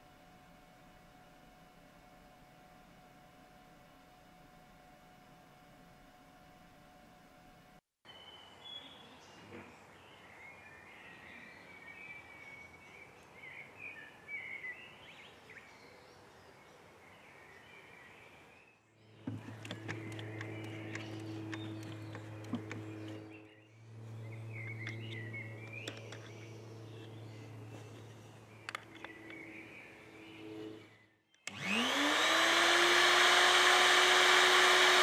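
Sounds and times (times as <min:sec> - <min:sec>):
outdoor background noise: 0:00.0 - 0:35.0
birds chirping: 0:08.1 - 0:32.0
low machine hum: 0:19.0 - 0:35.0
clicks: 0:19.2 - 0:23.2.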